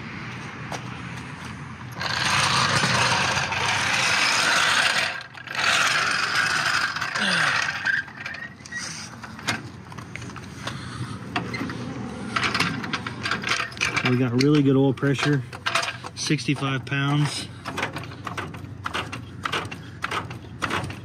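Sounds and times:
floor jack rolling over concrete: 2.0s - 9.7s
floor jack clicks and knocks: 17.6s - 21.0s.

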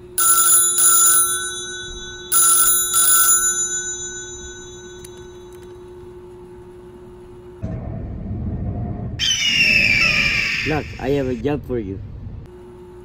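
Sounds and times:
telephone ringing: 0.0s - 6.0s
low hum: 3.6s - 13.0s.

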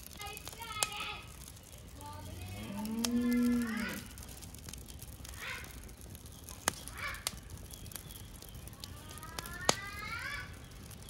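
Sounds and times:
sharp pops from fire: 0.0s - 11.0s
small fire crackling: 0.0s - 11.0s
faint rising calls: 1.8s - 4.4s.

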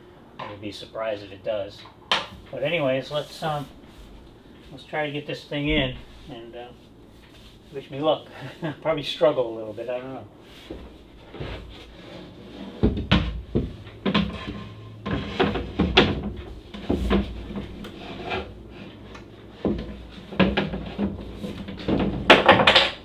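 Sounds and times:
wooden panel knocking and scraping: 10.7s - 18.5s, 19.5s - 23.0s.

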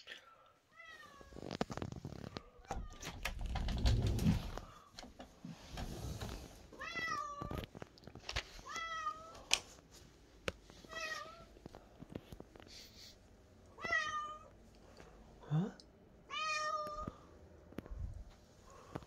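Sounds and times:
cat meowing: 13.8s - 14.5s, 16.3s - 17.2s.

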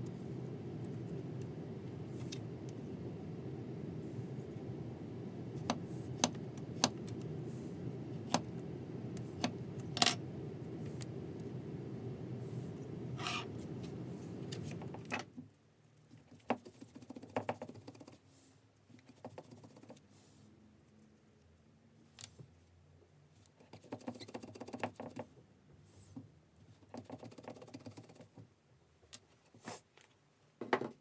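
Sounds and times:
steady low hum: 0.0s - 15.2s.

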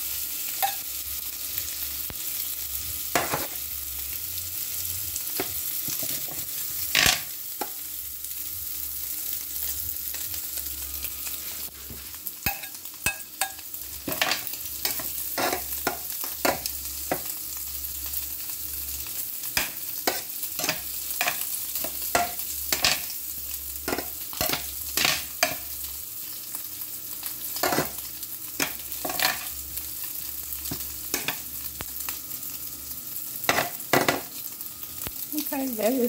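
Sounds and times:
food sizzling in a pan: 0.0s - 36.0s
crackles and pops: 34.9s - 35.2s.

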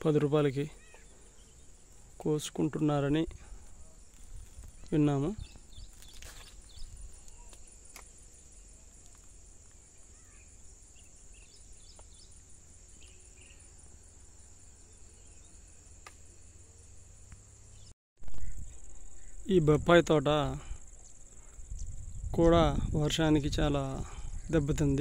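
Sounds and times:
insects droning: 0.0s - 25.0s
bird chirps: 0.6s - 2.1s, 10.0s - 15.7s.

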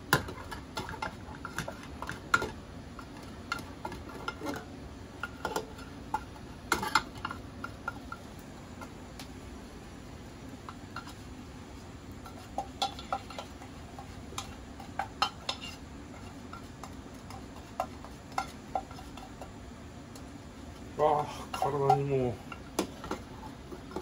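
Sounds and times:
steady low hum: 0.0s - 24.0s
spatula tapping metal tin: 21.5s - 23.2s.

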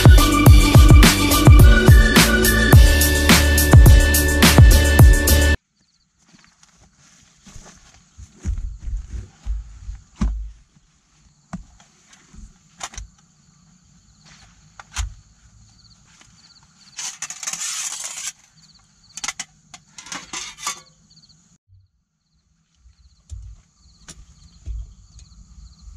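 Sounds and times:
insects chirping: 5.6s - 25.9s
nylon stuff sack rustling: 6.2s - 12.8s.

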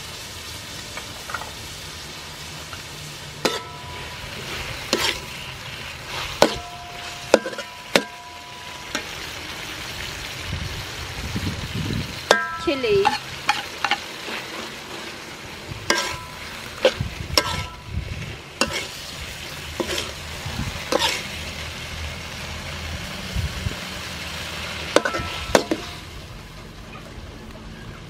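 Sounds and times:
food sizzling in hot oil: 0.0s - 26.8s
metal spatula scraping wok: 2.5s - 10.1s, 12.3s - 21.6s, 24.5s - 26.2s.

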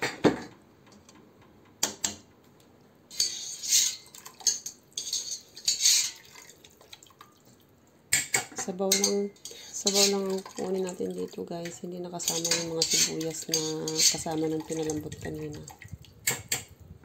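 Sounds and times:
pots and strainer clinking: 3.1s - 6.4s, 8.2s - 10.9s, 11.6s - 15.6s
liquid pouring and splashing: 3.5s - 7.8s, 9.8s - 16.7s.

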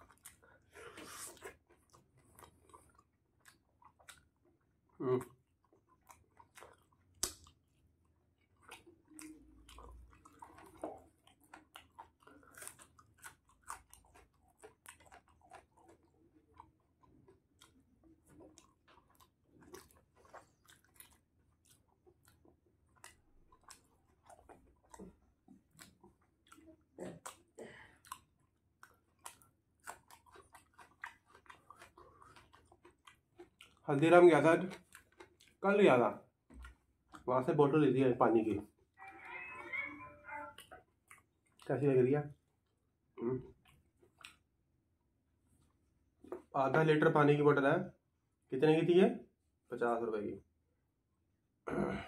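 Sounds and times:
person chewing and biting: 0.0s - 33.8s, 34.6s - 35.6s, 42.6s - 44.5s.

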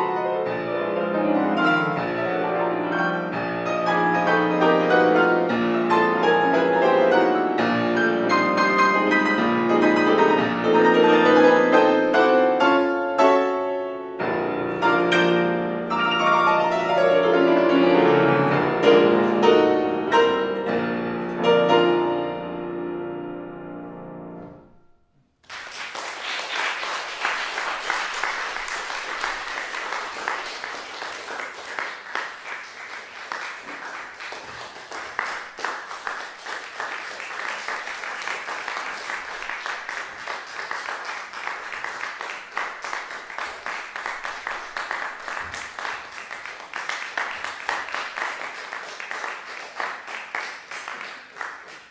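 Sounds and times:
audience applauding: 25.4s - 51.9s.

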